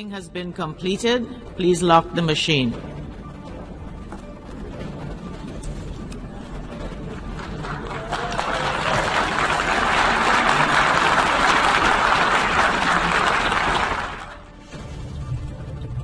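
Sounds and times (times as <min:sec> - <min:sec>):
crowd applauding: 0:06.9 - 0:14.5.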